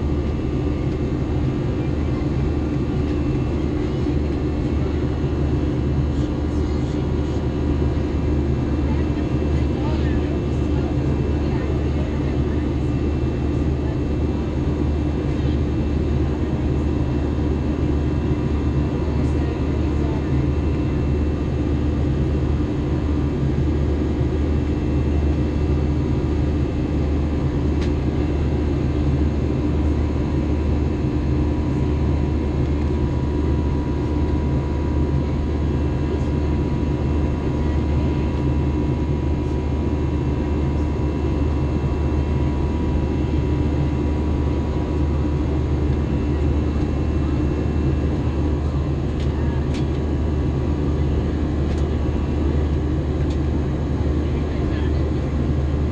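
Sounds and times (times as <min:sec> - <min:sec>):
airliner cabin engine rumble: 0:00.0 - 0:55.9.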